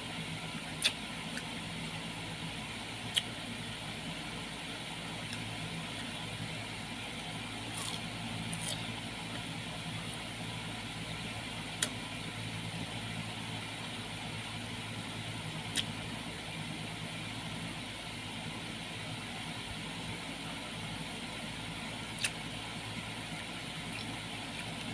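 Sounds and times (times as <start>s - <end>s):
low mechanical hum: 0.0s - 24.9s
person chewing fruit: 0.7s - 1.5s, 3.0s - 3.4s, 7.6s - 9.5s, 11.8s - 12.0s, 15.7s - 15.9s, 22.2s - 22.4s, 23.8s - 24.9s.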